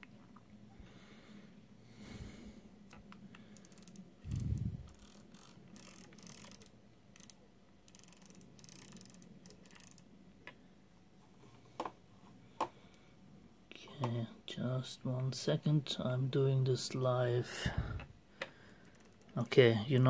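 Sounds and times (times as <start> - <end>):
rotary dial clicking: 3.1 - 10.1, 18.8 - 19.5.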